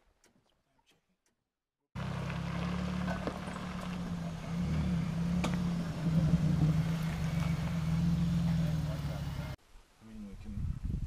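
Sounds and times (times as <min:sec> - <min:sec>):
car engine running: 0:02.0 - 0:09.6.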